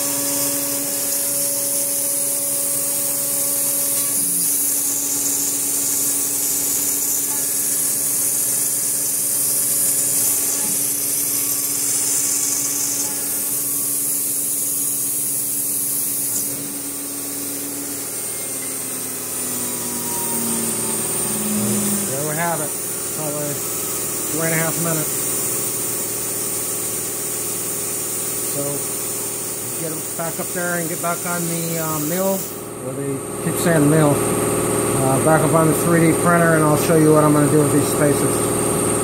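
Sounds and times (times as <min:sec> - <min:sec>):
router spindle whining while cutting: 0:00.0 - 0:27.3.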